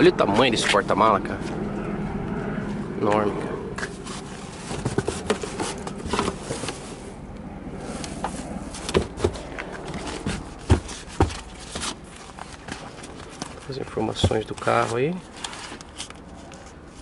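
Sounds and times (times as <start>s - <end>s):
trunk panel knocks and scrapes: 8.9s - 12.0s.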